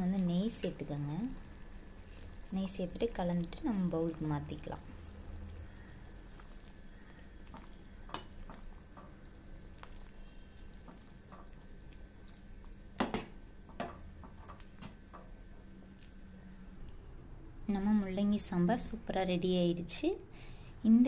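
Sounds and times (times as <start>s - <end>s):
low steady hum: 0.0s - 21.0s
ladle stirring thick liquid: 0.5s - 14.8s.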